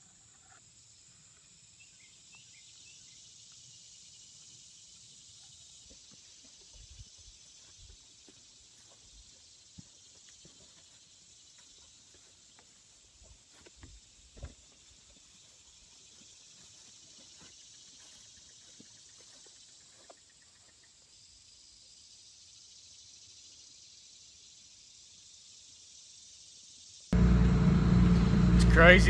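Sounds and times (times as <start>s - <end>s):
faint insect chorus: 0.0s - 27.2s.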